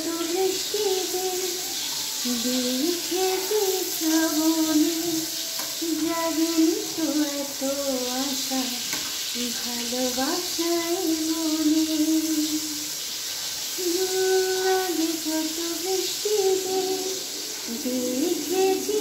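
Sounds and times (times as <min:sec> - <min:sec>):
woman singing in long held notes: 0:00.0 - 0:12.9, 0:13.8 - 0:19.0
vegetable slices sizzling in hot oil: 0:00.0 - 0:19.0
spatula stirring in a pan: 0:05.2 - 0:05.8, 0:07.6 - 0:10.6.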